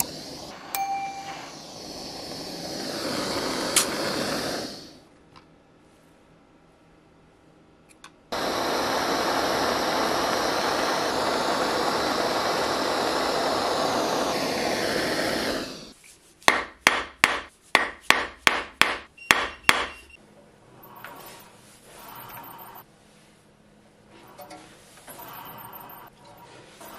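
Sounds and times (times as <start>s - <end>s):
gas torch flame hissing: 0.0s - 5.1s, 8.3s - 16.0s, 20.8s - 22.8s, 25.0s - 26.1s.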